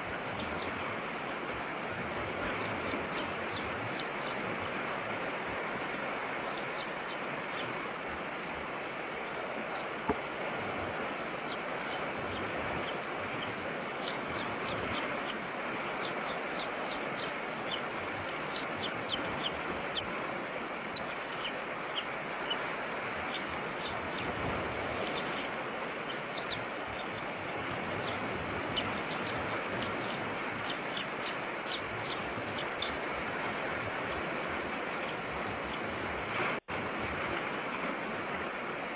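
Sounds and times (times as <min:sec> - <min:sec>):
wind and surf rushing: 0:00.0 - 0:38.9
eagle chick peeping: 0:11.4 - 0:20.1, 0:24.9 - 0:33.0.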